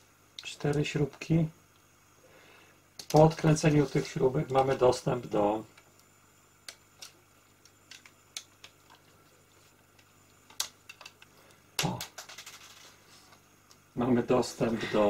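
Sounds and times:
parts clattering: 7.9s - 13.4s.

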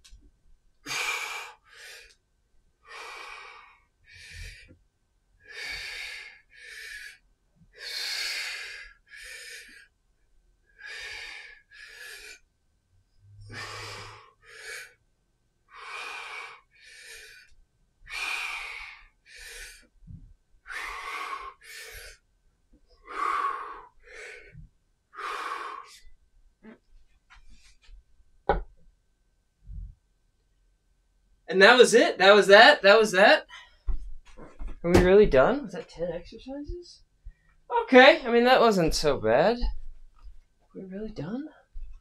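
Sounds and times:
man breathing hard: 0.8s - 2.2s, 2.8s - 4.8s, 5.5s - 7.2s, 7.8s - 9.9s, 10.8s - 12.5s, 13.4s - 15.0s, 15.7s - 17.5s, 18.1s - 19.9s, 20.6s - 22.2s, 23.0s - 26.1s.

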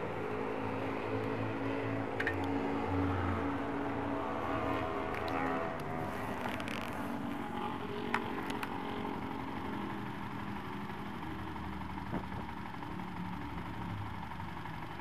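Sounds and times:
motorcycle engine idling: 4.9s - 15.0s.

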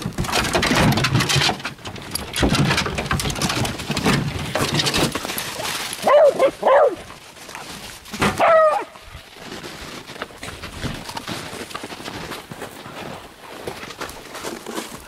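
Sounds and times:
dogs scuffling in straw: 5.0s - 15.0s
dog yipping: 6.0s - 7.0s, 8.4s - 9.0s
dog yelping: 6.0s - 7.1s, 8.4s - 9.0s.

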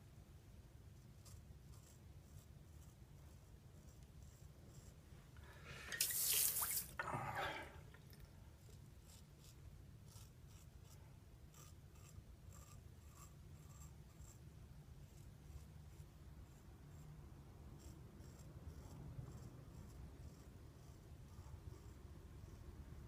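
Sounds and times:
razor scraping stubble: 1.0s - 5.0s, 8.6s - 14.4s, 17.7s - 22.1s.

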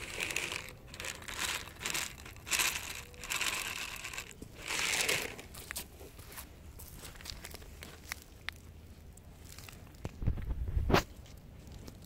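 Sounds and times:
plastic packet crinkling: 0.0s - 5.5s
dry kibble falling on concrete: 0.0s - 5.9s.

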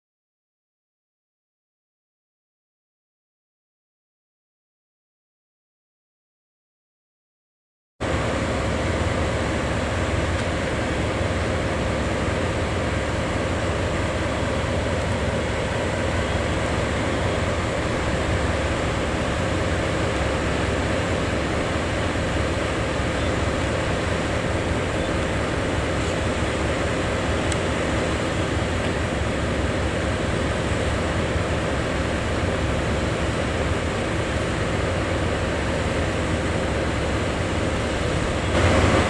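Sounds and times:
diesel engine idling: 8.0s - 39.0s.

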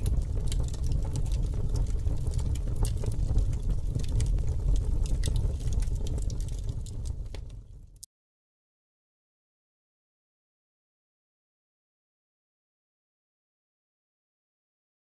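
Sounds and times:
gas burner flames rumbling: 0.0s - 8.0s
small crackles: 0.0s - 8.1s.

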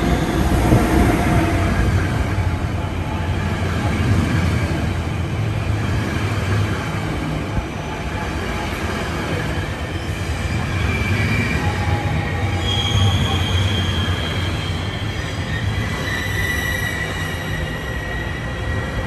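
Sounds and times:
low train rumble: 0.0s - 19.0s
train wheels squealing: 9.5s - 19.0s.

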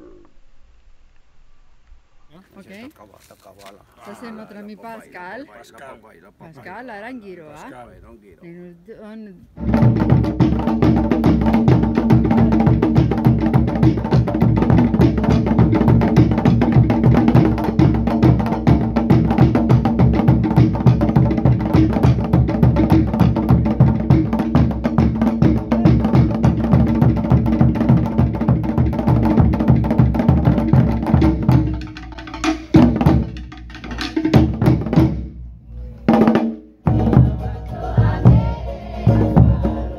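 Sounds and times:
fast dance drumming: 9.6s - 35.3s
rapid wooden strikes: 9.6s - 35.4s
deep drum beats: 9.6s - 39.9s.

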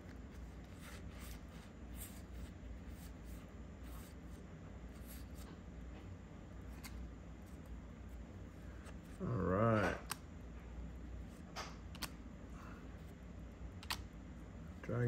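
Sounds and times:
cards rubbing and flicking: 0.0s - 5.6s, 6.6s - 7.7s
low steady hum: 0.0s - 15.0s.

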